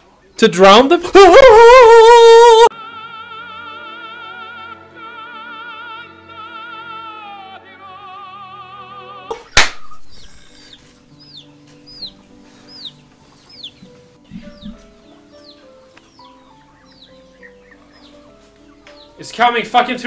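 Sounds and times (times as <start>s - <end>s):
man singing opera: 1.0s - 9.4s
high falling bird chirps: 9.8s - 19.3s.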